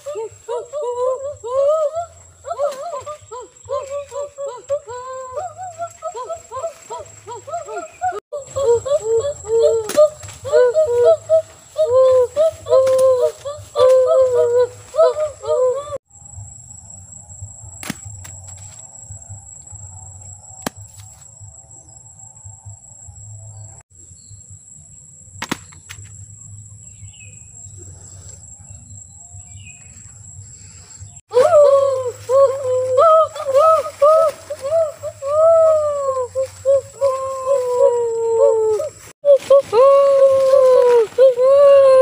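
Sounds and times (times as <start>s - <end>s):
high-pitched insect drone: 0.0s - 42.0s
children calling: 31.3s - 42.0s.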